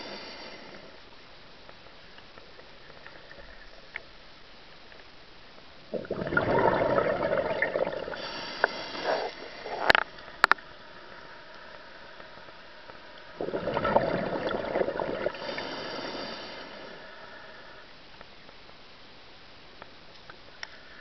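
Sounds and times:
underwater breath bubbling: 5.9s - 17.9s.

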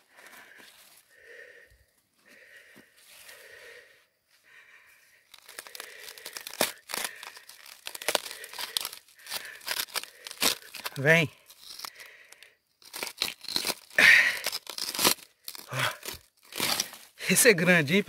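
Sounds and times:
rock fragments and gravel crunching: 5.3s - 12.1s, 12.8s - 17.0s.

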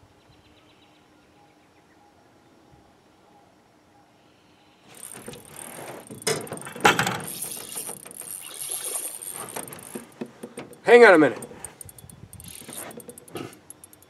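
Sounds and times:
spinning reel whirring: 4.9s - 14.0s.

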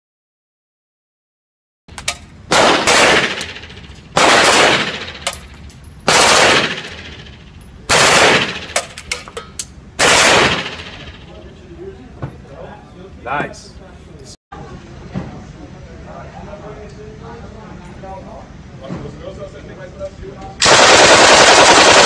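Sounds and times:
single gunshot cracks: 2.0s - 5.4s
submachine gun bursts: 20.6s - 22.0s.

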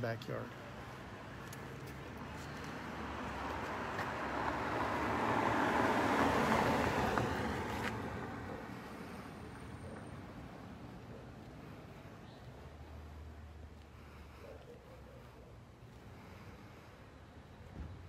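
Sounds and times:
car driving past: 2.3s - 10.3s.

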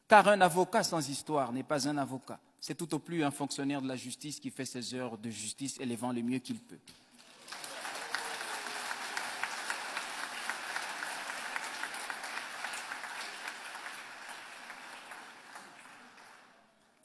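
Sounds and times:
audience applauding: 7.2s - 17.0s.

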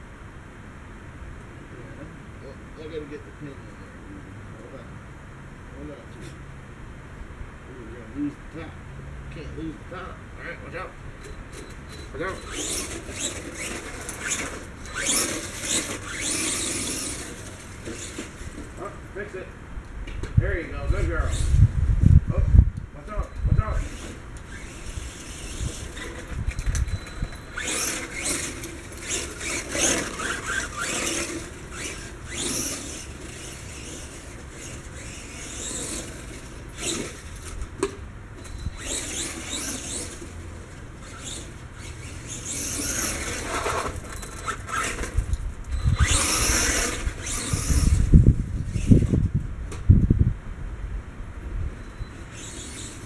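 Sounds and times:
electric toy truck motor whining: 12.3s - 18.9s, 23.7s - 49.3s, 52.1s - 53.0s.

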